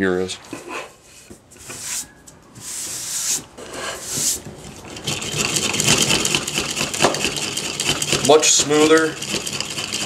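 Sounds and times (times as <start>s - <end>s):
drill bit scraping through wood: 2.6s - 10.0s.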